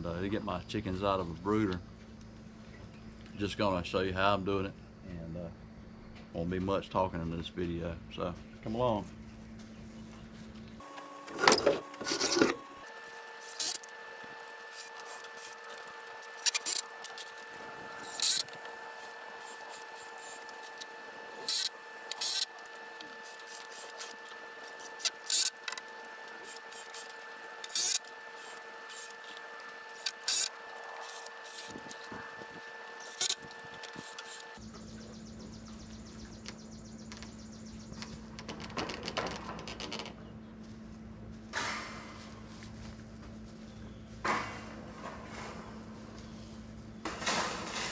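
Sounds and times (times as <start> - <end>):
faint steady hum: 0.0 - 47.9
scraping and knocking on wooden boards: 38.0 - 40.3.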